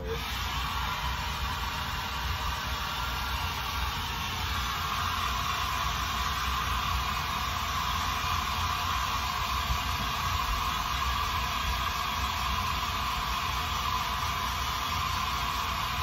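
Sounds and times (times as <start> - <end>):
hair dryer blowing: 0.0 - 16.0
low furnace hum: 0.0 - 16.0.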